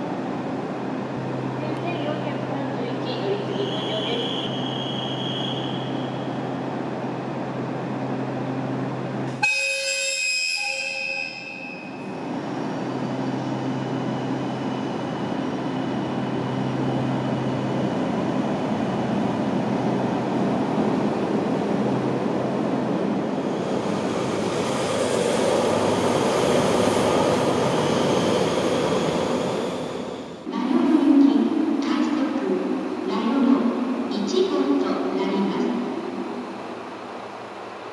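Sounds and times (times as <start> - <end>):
train horn: 9.4 - 11.6
train running noise: 10.2 - 37.9
diesel locomotive hum: 12.0 - 37.9.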